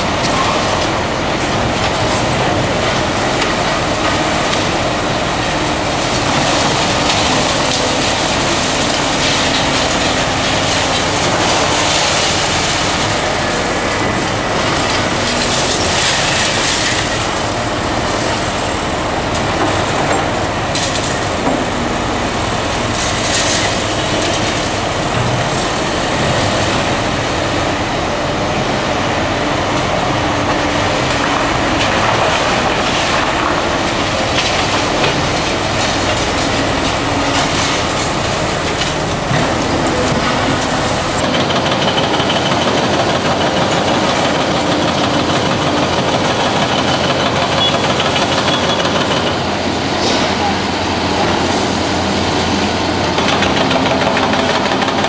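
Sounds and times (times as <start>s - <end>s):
excavator engines and hydraulics: 0.0s - 55.0s
crunching and clanking concrete: 30.4s - 55.0s.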